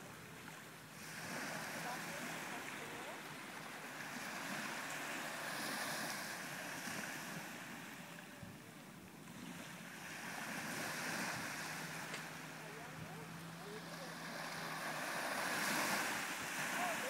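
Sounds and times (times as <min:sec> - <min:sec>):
small waves washing onto beach: 0:00.0 - 0:17.0.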